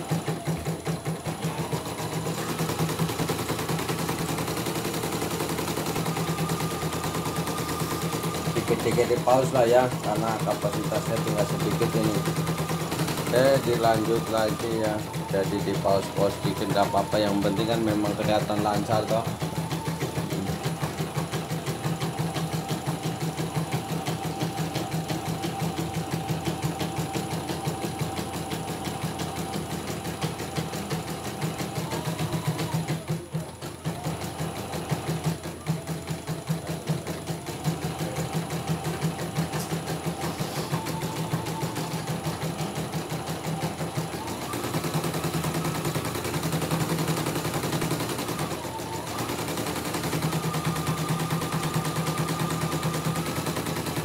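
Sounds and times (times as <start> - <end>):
embroidery machine needle patter: 0.0 - 54.0.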